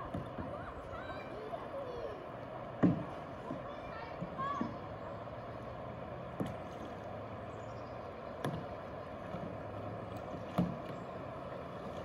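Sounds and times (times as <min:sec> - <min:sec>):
moving water wash: 0:00.0 - 0:12.0.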